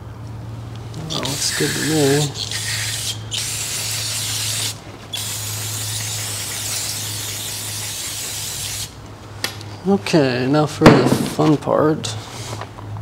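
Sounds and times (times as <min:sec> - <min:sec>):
aerosol spray hissing: 0:01.0 - 0:09.0.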